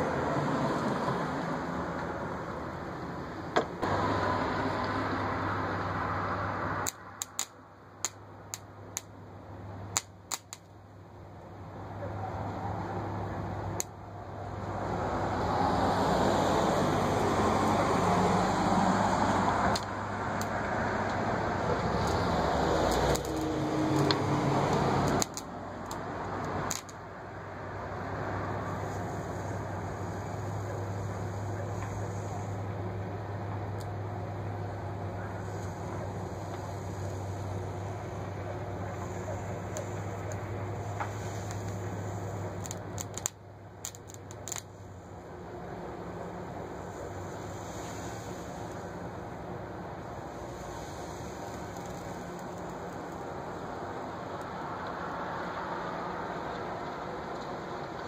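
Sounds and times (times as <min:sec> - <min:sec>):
transformer humming: 0:00.0 - 0:55.1
sharp spark snaps: 0:06.6 - 0:09.2, 0:09.9 - 0:10.8, 0:16.7 - 0:27.1, 0:35.4 - 0:44.9, 0:50.2 - 0:53.3
electrode buzzing and sizzling: 0:11.4 - 0:55.0
electric arc crackling hiss: 0:12.4 - 0:58.0.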